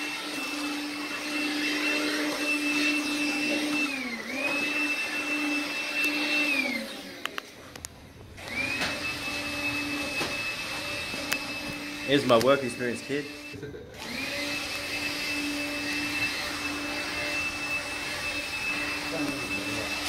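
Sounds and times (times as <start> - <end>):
cordless vacuum cleaner whining: 0.0 - 20.0.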